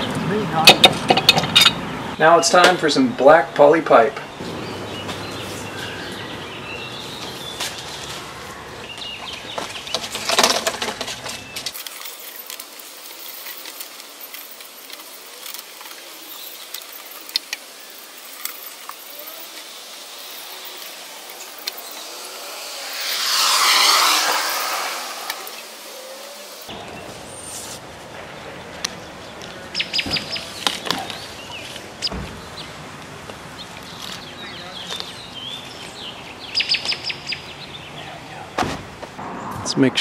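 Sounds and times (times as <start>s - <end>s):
car passing: 19.7s - 27.3s, 39.0s - 40.0s.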